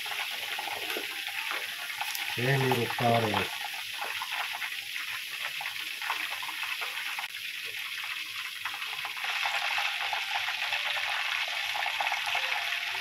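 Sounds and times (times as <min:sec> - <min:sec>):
chicken deep-frying in oil: 0:00.0 - 0:13.0.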